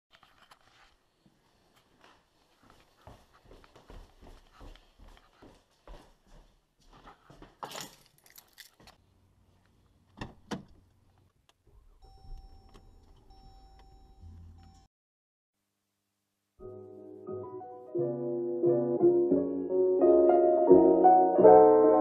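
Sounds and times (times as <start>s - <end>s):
footsteps: 0.2s - 9.0s
keys jangling: 7.6s - 8.9s
car electronic warning tone: 11.9s - 14.9s.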